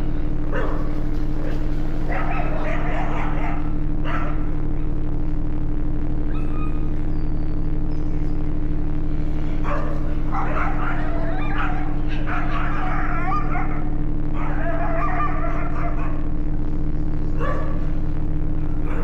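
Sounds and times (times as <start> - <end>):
steady low hum: 0.0 - 19.0
dogs yelping and barking: 1.4 - 4.4, 6.3 - 7.2, 9.6 - 16.3, 17.4 - 17.8.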